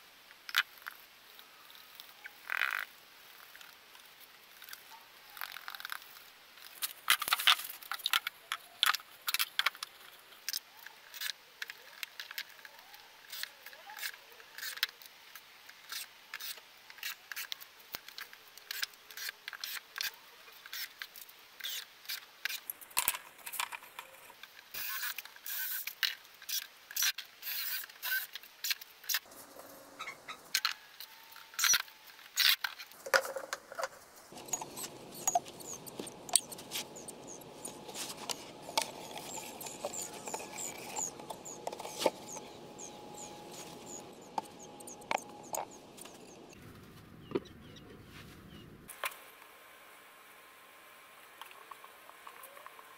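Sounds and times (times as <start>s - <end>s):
steady outdoor hiss: 0.0s - 52.9s
faint high chirps: 34.3s - 46.6s.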